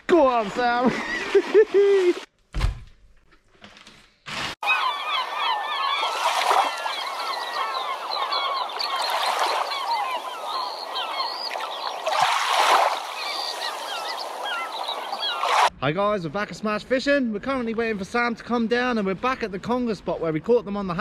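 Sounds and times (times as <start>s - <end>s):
birds chirping and squawking: 4.6s - 15.7s.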